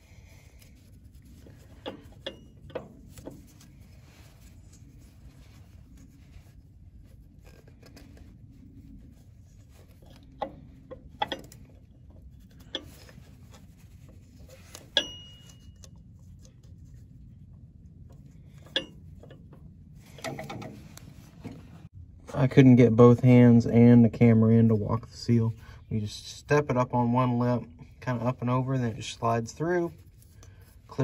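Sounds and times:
low steady rumble: 0:00.0 - 0:31.0
brief metallic ring: 0:15.0 - 0:15.8.

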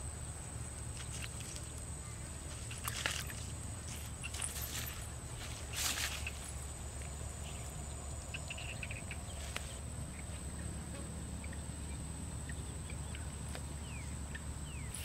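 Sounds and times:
faint chirps: 0:01.0 - 0:15.0.

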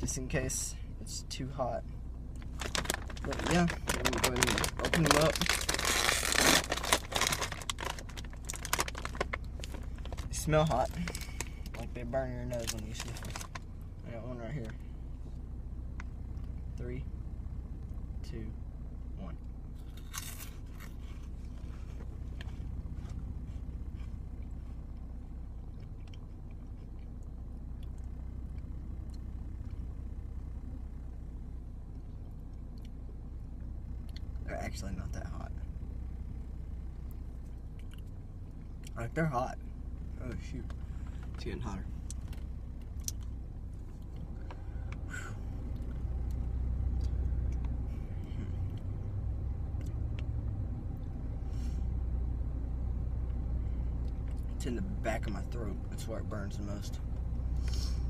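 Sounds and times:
low rumble inside a car: 0:00.0 - 0:58.0
person chewing crunchy snack: 0:19.8 - 0:21.3
faint rustles: 0:19.8 - 0:25.2.

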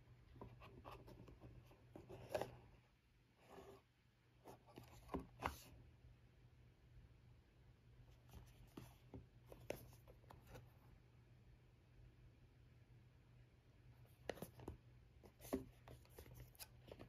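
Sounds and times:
fingers handling cardboard box: 0:14.1 - 0:17.0.

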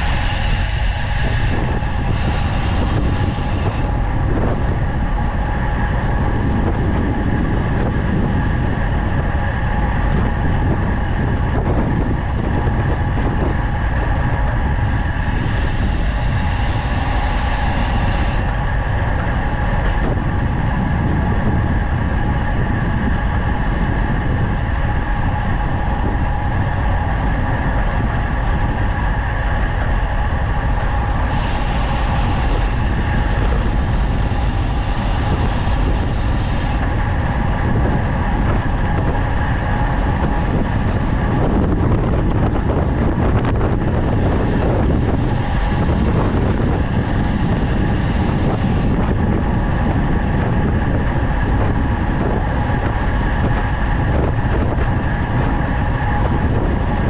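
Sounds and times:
bright hiss: 0:00.0 - 0:03.9, 0:14.8 - 0:18.5, 0:31.2 - 0:36.8
steady whine: 0:00.0 - 0:57.0
wind rush on microphone: 0:00.0 - 0:57.0.

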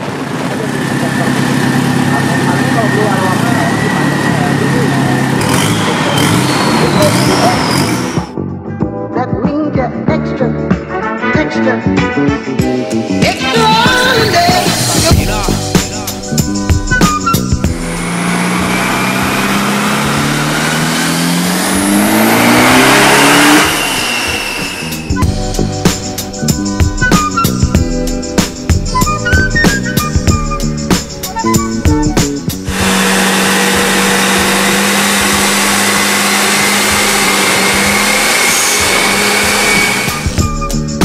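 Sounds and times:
spinning rollers and tyres: 0:00.0 - 0:08.3, 0:16.2 - 0:26.5, 0:32.5 - 0:41.0
diesel engine at full throttle: 0:00.0 - 0:08.4, 0:13.4 - 0:41.0
faint rising whine: 0:17.0 - 0:26.1.

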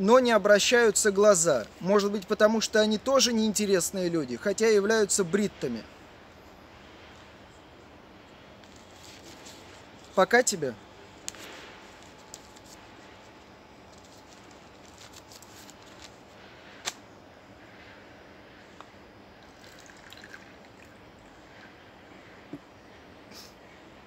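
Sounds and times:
faint background hiss: 0:00.0 - 0:24.0.

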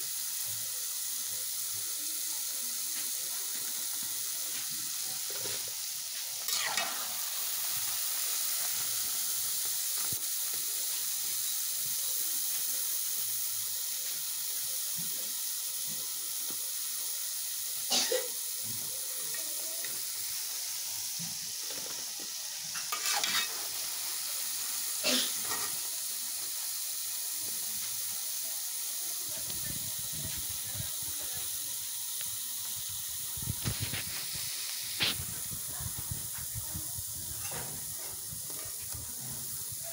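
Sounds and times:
dough sizzling in hot oil: 0:00.0 - 0:39.9
metal spoon scraping pan: 0:06.4 - 0:07.1, 0:22.7 - 0:23.7.

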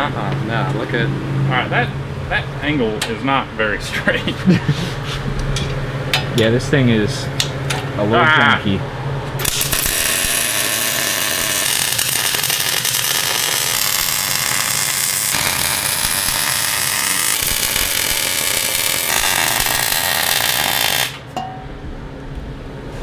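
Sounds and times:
welder arc crackling: 0:09.4 - 0:21.3.

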